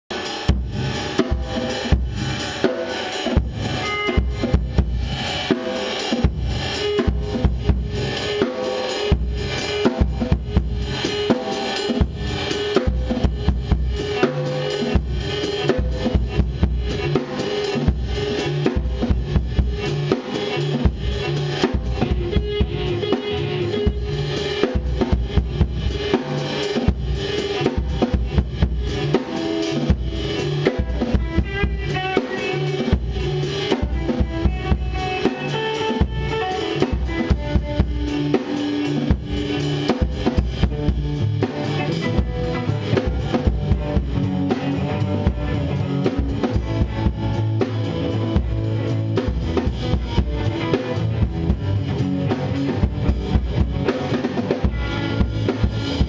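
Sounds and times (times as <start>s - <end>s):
band jamming: 0.1s - 56.0s
drum kit beat: 0.1s - 56.0s
low bass notes: 39.0s - 56.0s.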